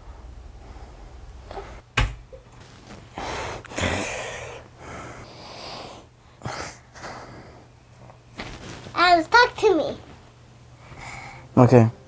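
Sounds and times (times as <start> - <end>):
door banging shut: 1.9 - 2.4
person breathing heavily: 3.1 - 7.8, 10.8 - 11.5.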